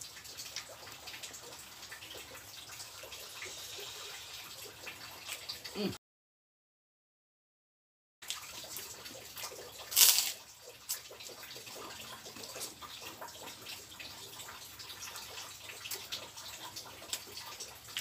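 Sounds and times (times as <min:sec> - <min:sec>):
rain pattering: 0:08.2 - 0:18.0
cracker crunch: 0:09.9 - 0:11.0.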